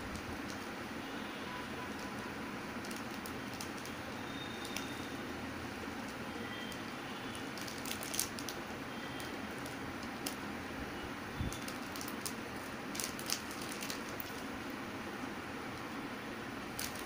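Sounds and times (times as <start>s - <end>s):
plastic snack packet crinkling: 1.9s - 5.0s, 5.9s - 8.6s, 9.2s - 10.4s, 11.4s - 14.5s, 16.7s - 17.0s.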